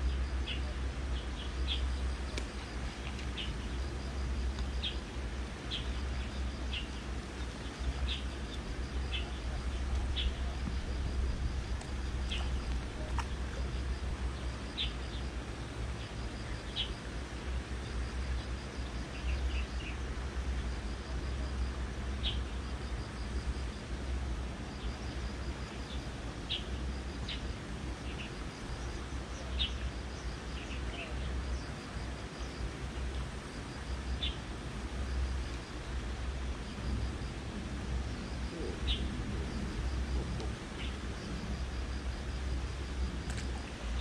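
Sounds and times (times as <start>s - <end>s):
small birds chirping: 0.0s - 11.0s, 11.7s - 17.0s, 25.7s - 33.2s, 34.1s - 34.5s, 38.5s - 40.0s, 40.7s - 41.3s
steady low rumble: 0.0s - 44.0s.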